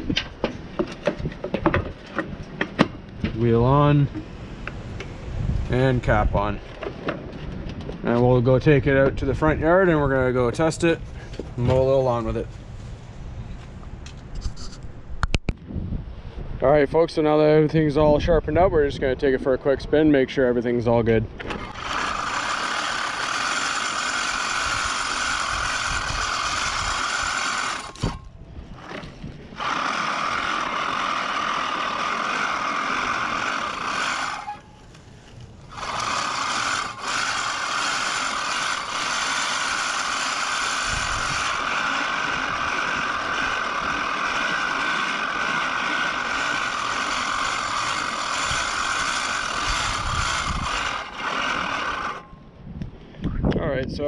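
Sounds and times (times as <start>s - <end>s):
reel lawn mower whirring: 21.4s - 52.4s.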